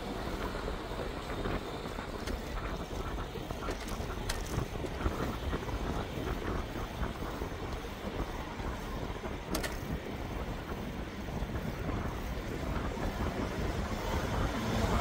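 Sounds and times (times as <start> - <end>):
road noise: 0.0 - 15.0
wind rumble on microphone: 0.0 - 15.0.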